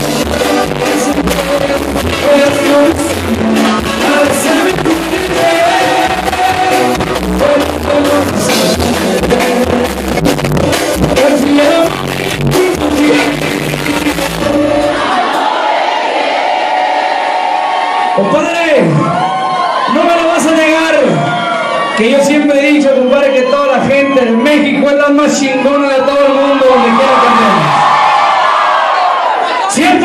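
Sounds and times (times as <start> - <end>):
steady drum beat: 0.0 - 15.2
keyboards: 0.0 - 17.2
lead vocal singing: 0.0 - 18.2.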